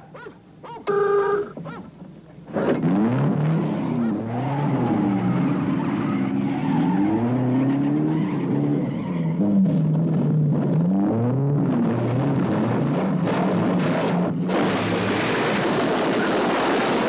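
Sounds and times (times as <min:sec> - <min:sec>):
engines revving: 0:02.4 - 0:17.0.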